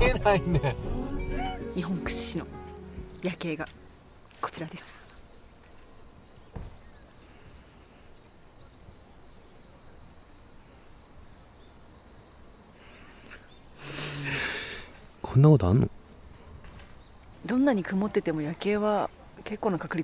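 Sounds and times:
insects trilling: 0:00.1 - 0:20.0
soft knock: 0:06.5 - 0:06.8.

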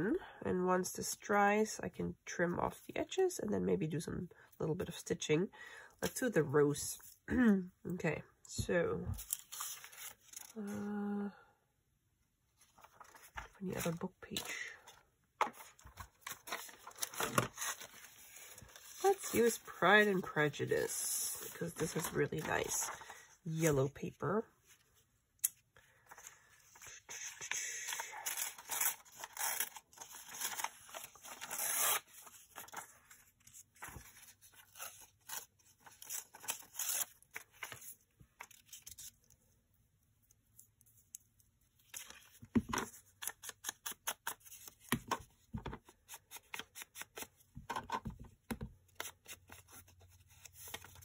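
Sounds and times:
paper handling: 0:12.6 - 0:20.3, 0:21.3 - 0:23.3, 0:27.9 - 0:39.2, 0:48.8 - 0:51.0
paper ripping and rustling: 0:15.6 - 0:19.7, 0:27.9 - 0:39.2.

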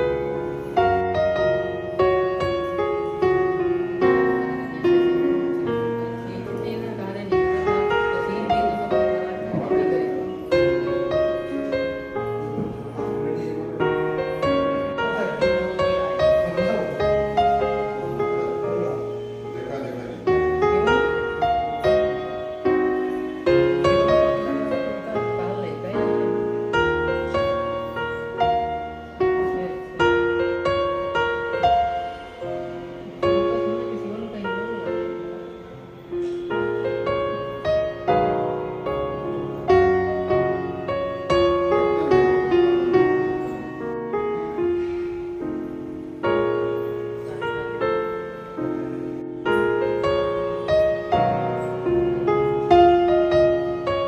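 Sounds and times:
slow piano music: 0:00.0 - 0:54.0.

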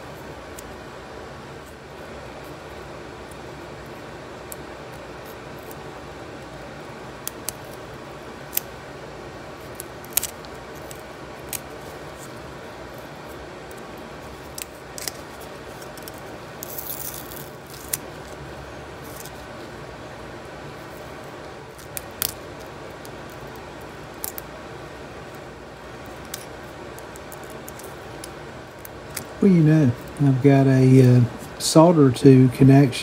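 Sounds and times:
papery crackle: 0:09.6 - 0:18.4.

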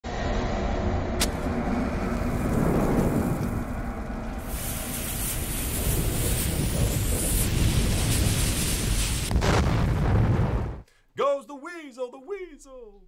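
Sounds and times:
burning fuse rumble: 0:01.2 - 0:10.8
fuse hissing: 0:04.4 - 0:09.3.

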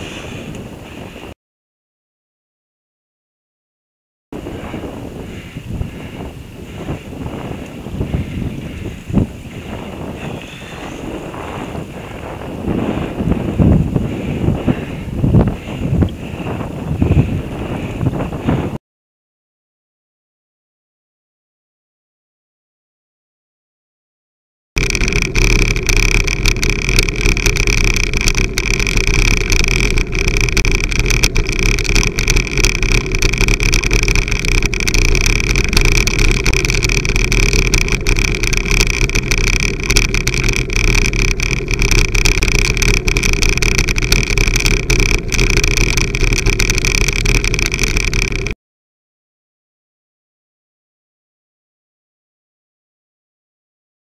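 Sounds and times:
bicycle road noise on wet road: 0:00.0 - 0:01.4, 0:04.4 - 0:18.8, 0:24.8 - 0:48.6
wind noise: 0:00.0 - 0:01.4, 0:04.4 - 0:18.8, 0:24.8 - 0:48.6
small clicks and taps: 0:24.8 - 0:48.6.

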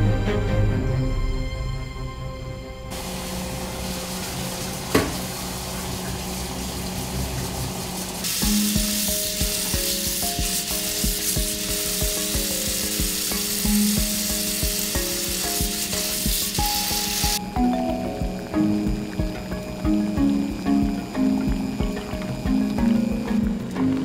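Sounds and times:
tap water running into strainer: 0:02.9 - 0:24.0
music with steady beat: 0:08.2 - 0:24.0.

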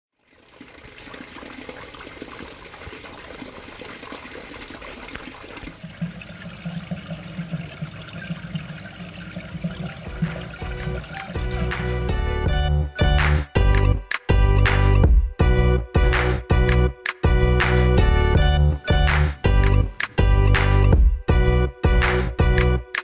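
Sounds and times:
fountain water splashing into basin: 0:00.1 - 0:12.0.

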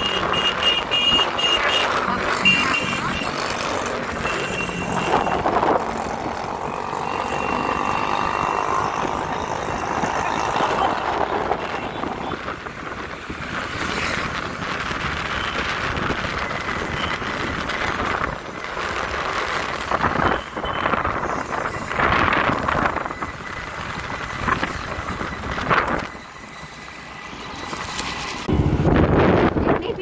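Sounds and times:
road traffic noise: 0:00.0 - 0:30.0
wind on microphone: 0:28.5 - 0:30.0.

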